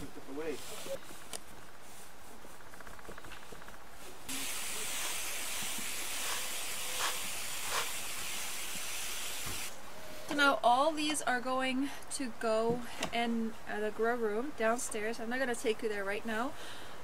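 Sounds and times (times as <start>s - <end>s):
water spraying onto soil: 4.3s - 9.7s.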